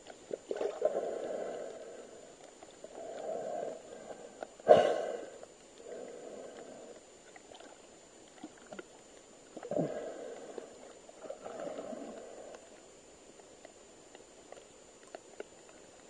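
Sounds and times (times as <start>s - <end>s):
muffled underwater sloshing: 0.0s - 16.0s
faint clicks: 5.3s - 16.0s.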